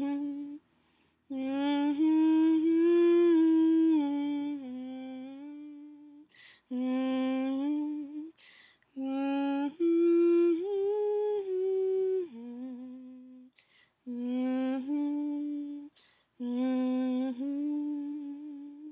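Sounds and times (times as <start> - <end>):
person humming: 0.0 - 0.6, 14.1 - 18.9.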